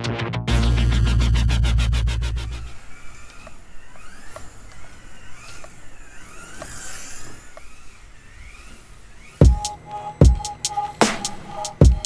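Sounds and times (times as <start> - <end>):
toy car motor whining: 2.3 - 12.0
light clicks: 3.2 - 7.8.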